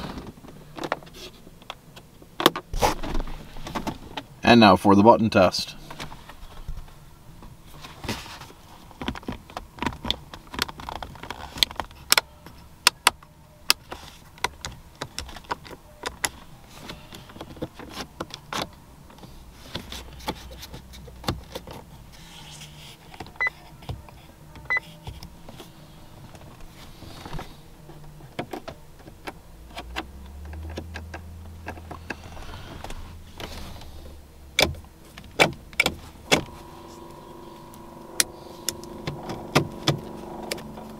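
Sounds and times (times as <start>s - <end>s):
low hum: 29.4s - 40.9s.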